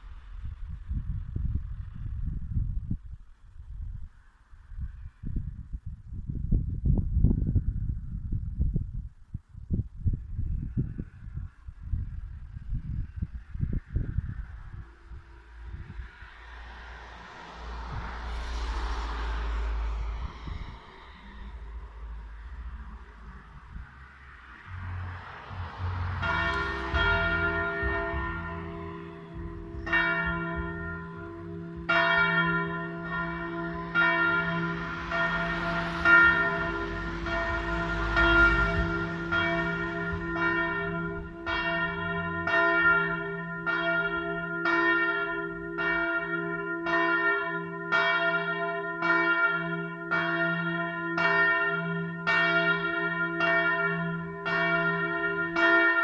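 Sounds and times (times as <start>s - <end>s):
continuous bell hum: 21.0s - 56.0s
large church bell ringing: 24.6s - 56.0s.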